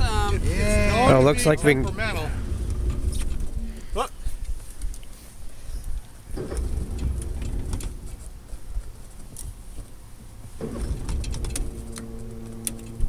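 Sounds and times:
electric tilt motor humming: 0.0 - 4.0, 6.4 - 8.9, 10.6 - 13.0.

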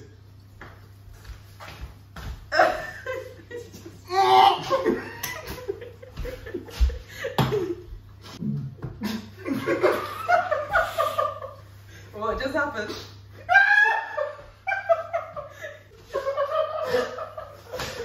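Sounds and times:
group of people laughing: 2.5 - 7.9, 9.0 - 11.6, 13.5 - 18.0.

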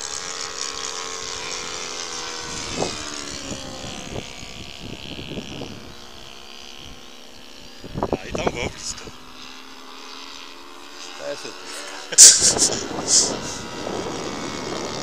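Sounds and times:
model airplane motors whining: 0.0 - 15.0.

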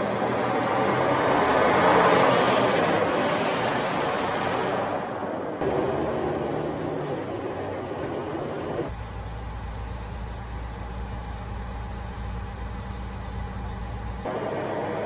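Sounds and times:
road and engine rushing: 0.0 - 15.0
low engine hum: 4.8 - 15.0.

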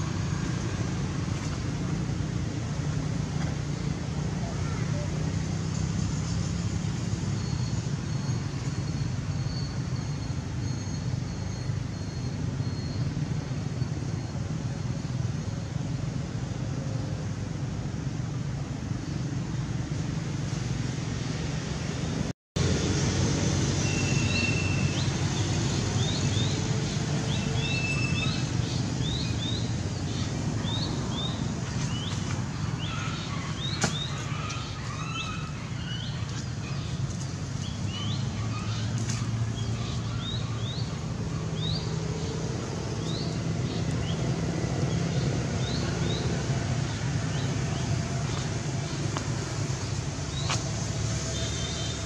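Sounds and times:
birds chirping: 23.8 - 52.0.

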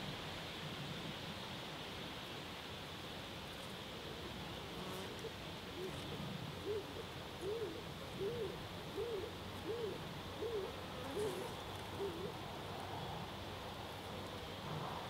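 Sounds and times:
bird hooting: 5.8 - 12.4.

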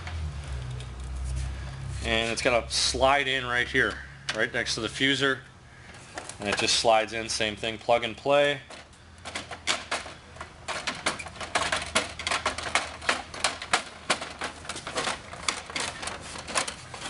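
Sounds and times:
plastic clicks knocks and rattles: 8.7 - 17.0.

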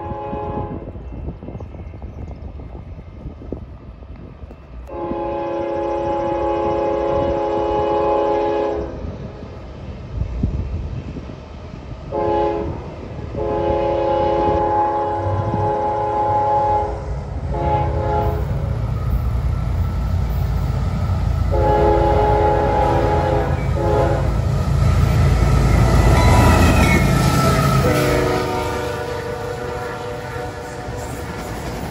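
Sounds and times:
locomotive air horn blasts: 0.0 - 0.9, 4.9 - 9.0, 12.1 - 18.6, 21.5 - 24.6, 25.5 - 31.8
train wheel noise: 0.0 - 31.9.

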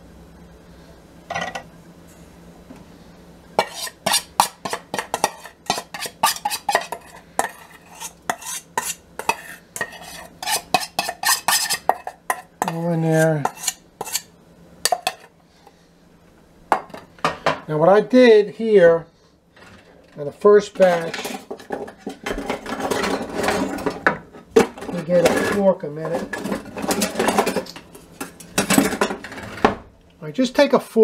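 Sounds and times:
metal spoon scraping a bowl: 3.6 - 14.3.

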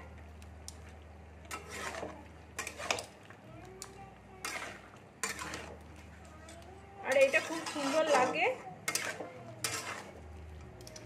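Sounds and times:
metal spatula scraping metal pan: 1.5 - 3.2, 4.4 - 11.0.

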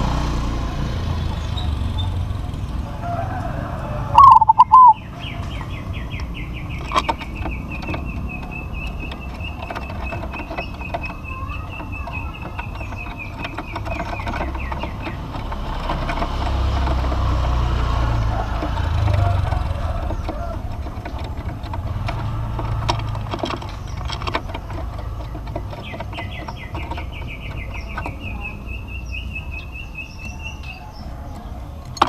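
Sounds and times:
dove cooing: 3.8 - 5.6.

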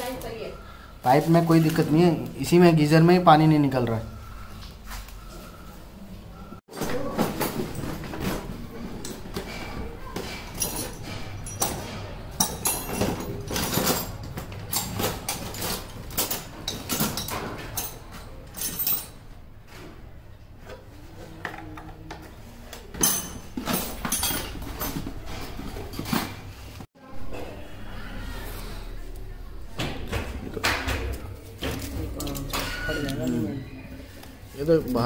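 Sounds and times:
hand tools and metal parts clattering: 6.6 - 26.9, 30.0 - 33.6.

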